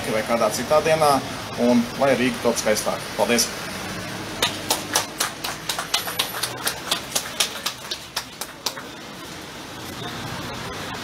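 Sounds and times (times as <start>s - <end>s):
small crowd applauding: 4.3s - 9.2s.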